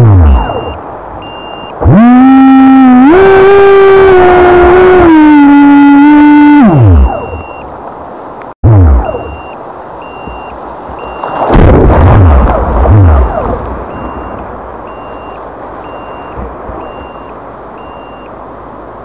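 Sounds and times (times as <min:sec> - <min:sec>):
two-tone electronic beep: 0:00.0 - 0:02.9, 0:05.4 - 0:07.7, 0:08.6 - 0:11.5, 0:12.2 - 0:18.3
water rushing and splashing: 0:00.0 - 0:19.0.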